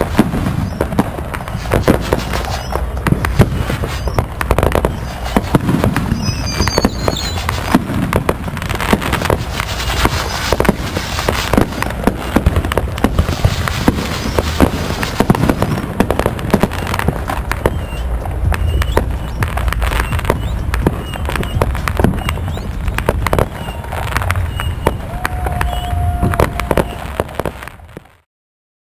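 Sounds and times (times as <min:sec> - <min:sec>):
fireworks popping and crackling: 0:00.0 - 0:28.3
high whistle: 0:02.2 - 0:02.8, 0:04.9 - 0:07.6, 0:17.6 - 0:27.3
low rumble: 0:14.7 - 0:26.9.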